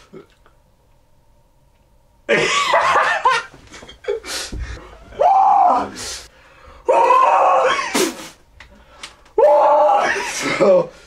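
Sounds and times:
young men laughing and yelling: 0:02.3 - 0:04.2.

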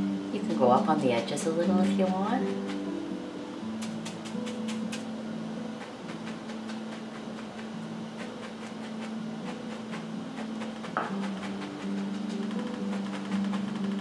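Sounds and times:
quiet background music: 0:00.0 - 0:14.0
brush tapping on canvas: 0:03.8 - 0:05.1, 0:05.8 - 0:14.0.

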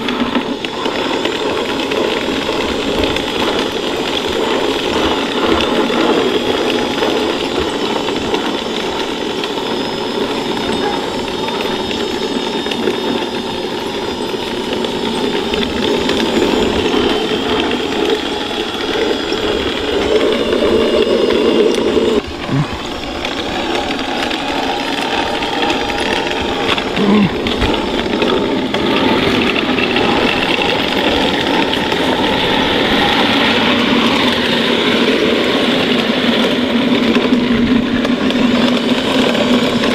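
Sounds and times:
electric motors whining: 0:00.0 - 0:39.9
metal tracks clattering: 0:00.0 - 0:39.9.

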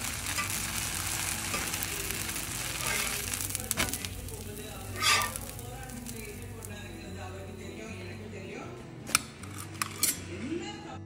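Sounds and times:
spatula scraping griddle: 0:00.0 - 0:07.0, 0:09.4 - 0:10.2
batter sizzling on a griddle: 0:00.0 - 0:08.4.

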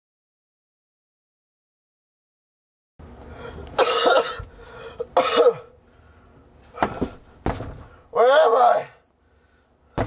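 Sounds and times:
short breaths: 0:03.2 - 0:03.8, 0:04.4 - 0:05.1, 0:05.8 - 0:08.1, 0:09.2 - 0:10.0
man coughing hoarsely: 0:03.8 - 0:05.8.

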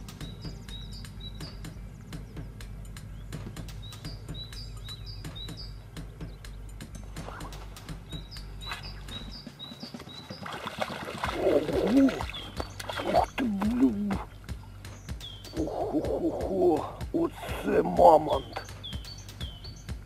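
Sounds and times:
songbird chirping: 0:00.0 - 0:20.0
person grunting: 0:13.3 - 0:14.3.

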